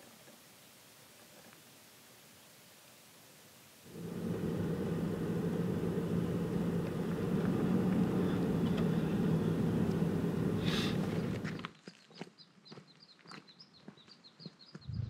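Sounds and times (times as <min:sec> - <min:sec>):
vehicle engine and road noise: 0:03.9 - 0:11.7.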